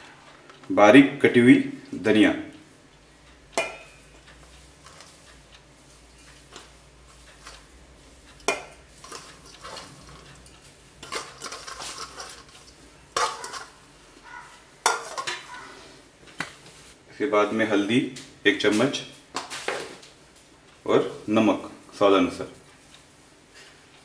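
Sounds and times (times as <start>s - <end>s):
steel bowls clinking and scraping: 8.4s - 15.9s.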